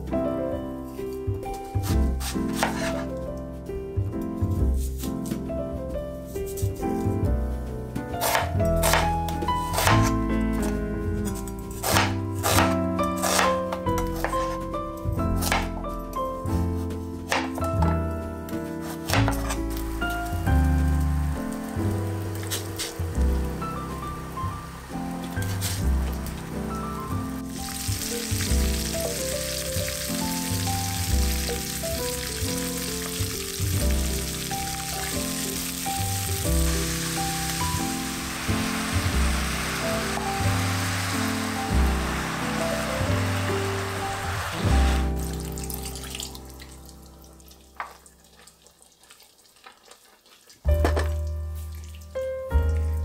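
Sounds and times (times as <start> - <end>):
background music with bass line: 1.1 - 45.9
vegetables sizzling in hot oil: 19.9 - 26.5, 27.4 - 45.2
splashes and clicks of stirring: 47.6 - 50.7.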